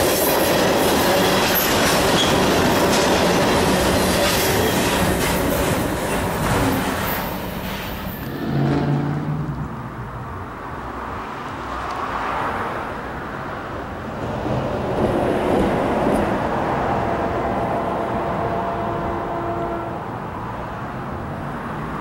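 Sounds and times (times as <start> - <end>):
freight train rail noise: 0.0 - 22.0
vehicle engine hum: 8.2 - 11.2.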